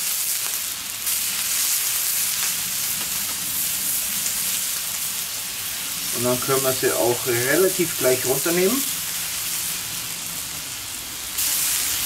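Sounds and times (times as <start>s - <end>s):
steak sizzling on hot plate: 0.0s - 12.0s.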